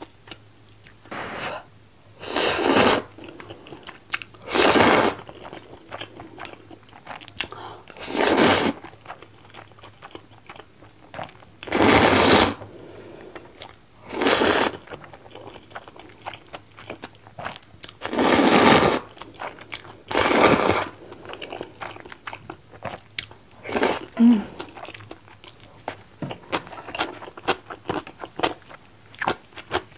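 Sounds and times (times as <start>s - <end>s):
soft chewing: 0.0s - 1.1s, 3.1s - 4.4s, 5.2s - 8.0s, 8.8s - 11.7s, 12.6s - 13.8s, 14.7s - 18.1s, 19.1s - 29.9s
person slurping noodles: 1.1s - 3.1s, 4.4s - 5.2s, 8.0s - 8.8s, 11.7s - 12.6s, 14.1s - 14.8s, 18.0s - 19.0s.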